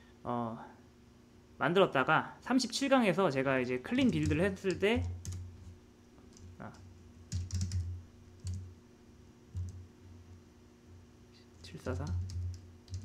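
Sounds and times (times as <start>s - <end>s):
keyboard and mouse clicks: 9.6s - 9.8s, 11.6s - 13.0s.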